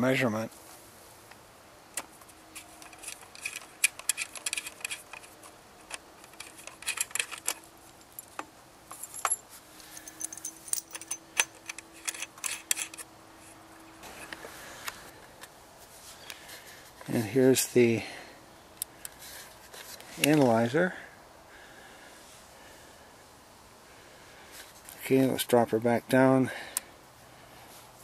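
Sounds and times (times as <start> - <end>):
faint steady hum: 0.0 - 28.0
metal cable connectors clinking: 2.6 - 13.1.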